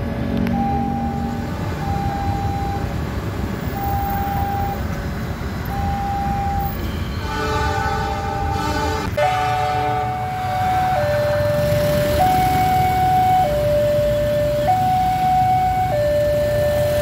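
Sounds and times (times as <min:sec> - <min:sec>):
road traffic: 0:00.0 - 0:17.0
two-tone crossing alarm: 0:00.4 - 0:02.9, 0:03.7 - 0:04.9, 0:05.7 - 0:08.6, 0:09.2 - 0:17.0
train horn blast: 0:07.2 - 0:11.0.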